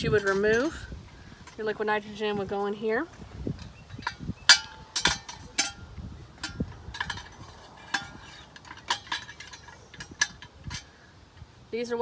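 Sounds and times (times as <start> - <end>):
metal canister clinking: 3.9 - 10.9.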